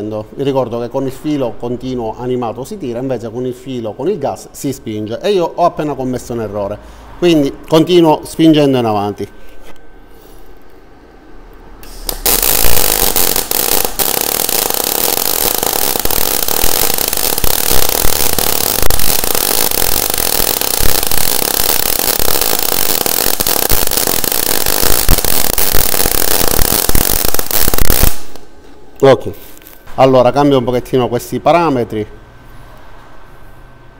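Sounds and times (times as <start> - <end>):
welding arc with small pops: 11.8 - 28.5.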